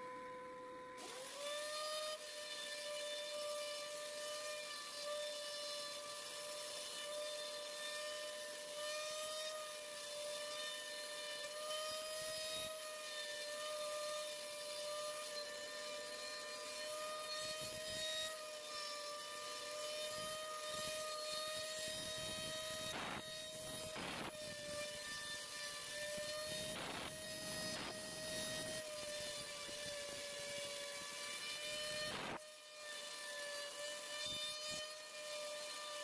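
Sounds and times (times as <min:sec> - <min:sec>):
router spindle whining: 0:00.0 - 0:36.0.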